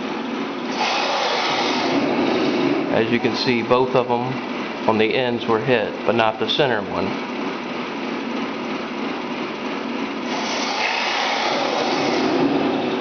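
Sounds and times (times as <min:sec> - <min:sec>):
toy tank motors whirring: 0:00.7 - 0:02.1, 0:10.3 - 0:12.5.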